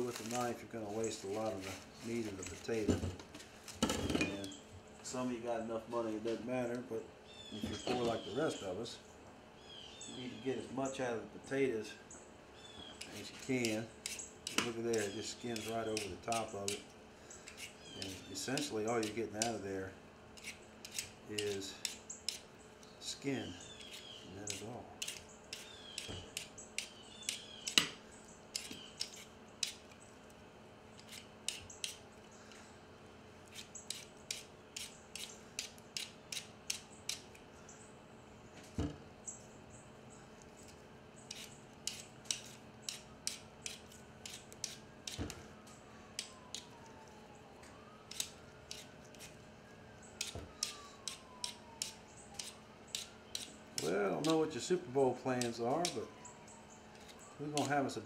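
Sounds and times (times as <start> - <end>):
peeler scraping potato skin: 13.0 - 16.8, 17.5 - 19.6, 20.4 - 22.4, 23.8 - 27.7, 28.5 - 29.9, 31.0 - 32.0, 33.5 - 37.4, 40.6 - 45.3, 48.1 - 49.4, 50.2 - 54.7, 55.4 - 56.0, 57.0 - 57.8.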